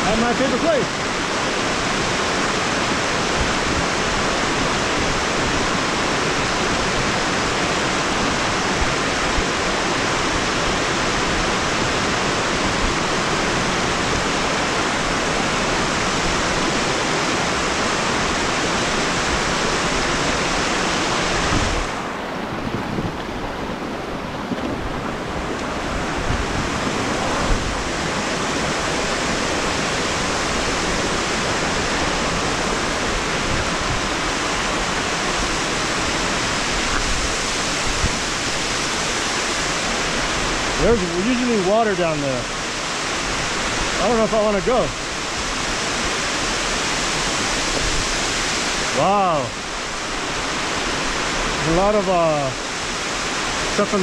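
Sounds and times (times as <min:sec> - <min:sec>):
stream rushing over rocks: 0:00.0 - 0:54.0.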